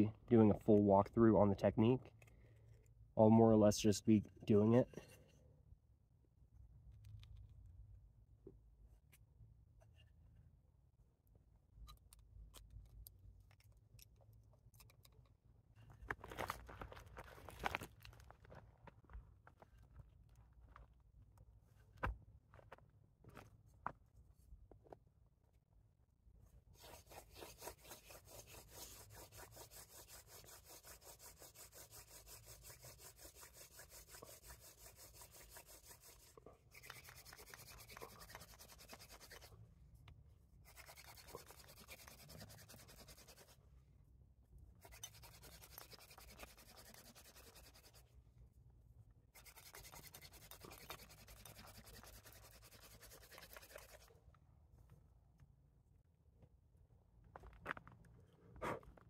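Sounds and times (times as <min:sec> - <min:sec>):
hand drill spindle rubbing: 0:26.8 - 0:39.5, 0:40.6 - 0:43.5, 0:44.8 - 0:48.0, 0:49.4 - 0:54.1.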